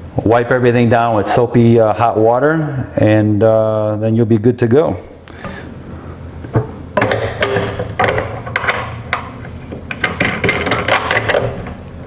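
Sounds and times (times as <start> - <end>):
metal parts clicking and scraping: 7.0 - 11.8.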